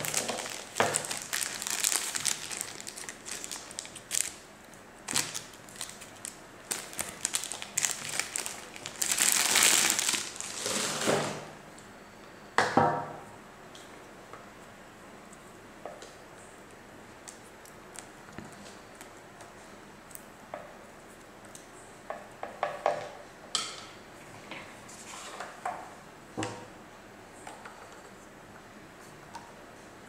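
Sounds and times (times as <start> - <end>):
plastic bag crinkling: 0.0 - 11.1.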